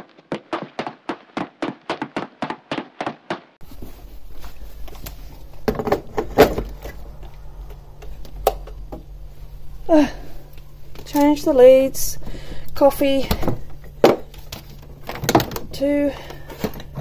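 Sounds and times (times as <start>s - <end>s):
quick footsteps on garden path: 0.0s - 5.5s
steady low hum: 3.6s - 17.0s.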